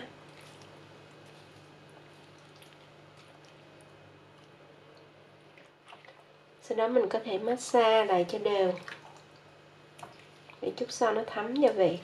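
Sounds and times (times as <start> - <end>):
low steady hum: 0.0 - 12.0
wet squelching of hand in marinade: 0.2 - 6.3.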